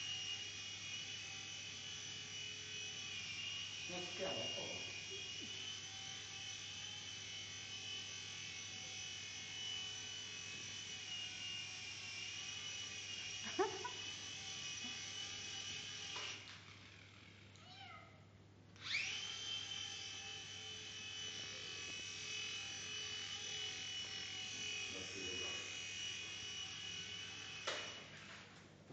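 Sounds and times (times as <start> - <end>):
toy helicopter motor whining: 0.0 - 17.6, 18.8 - 28.3
cat meowing: 17.6 - 18.2.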